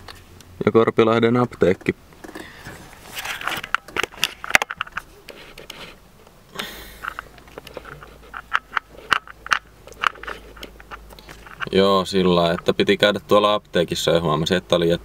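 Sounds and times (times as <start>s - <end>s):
camera handling clicks and knocks: 7.0s - 11.7s.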